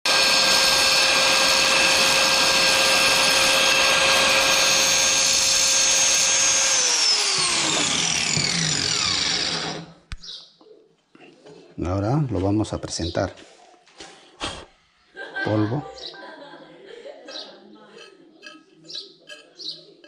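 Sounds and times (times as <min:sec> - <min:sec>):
angle grinder whining and spinning down: 0:00.1 - 0:10.1.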